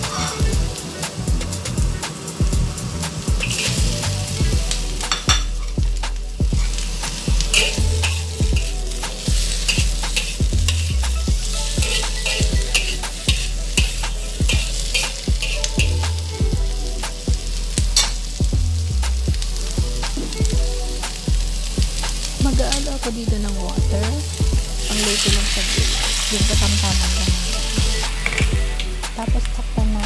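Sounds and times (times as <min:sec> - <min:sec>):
vegetables sizzling in hot oil: 0:00.0 - 0:30.0
utensil clattering against wok: 0:03.2 - 0:16.5, 0:17.8 - 0:18.2.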